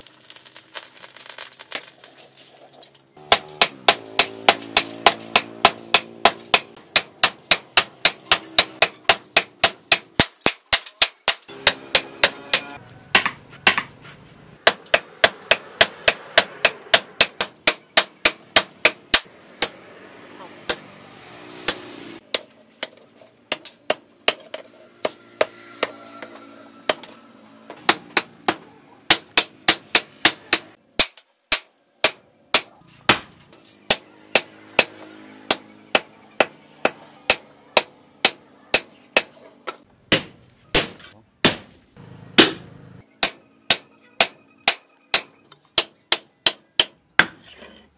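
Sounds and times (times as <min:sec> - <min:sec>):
hammer striking metal on anvil: 0:03.2 - 0:13.9, 0:23.5 - 0:27.2, 0:33.9 - 0:41.7, 0:42.4 - 0:42.6, 0:43.2 - 0:47.4.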